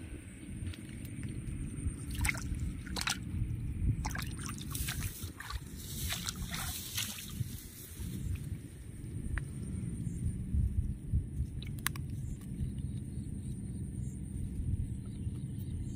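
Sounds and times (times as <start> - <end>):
low rumble: 0.0 - 15.9
water sloshing and splashing: 0.6 - 7.6.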